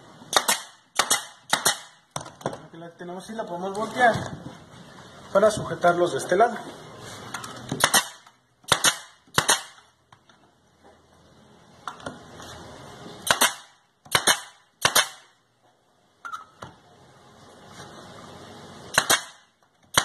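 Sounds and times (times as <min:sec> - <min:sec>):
nail gun firing into wood: 0:00.3 - 0:02.4, 0:07.7 - 0:09.9, 0:13.2 - 0:15.4, 0:18.9 - 0:20.0.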